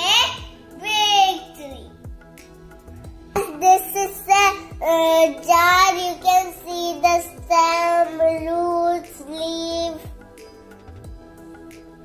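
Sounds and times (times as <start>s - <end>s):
child singing: 0.0s - 1.9s, 3.4s - 10.2s
soft background music: 0.0s - 12.0s.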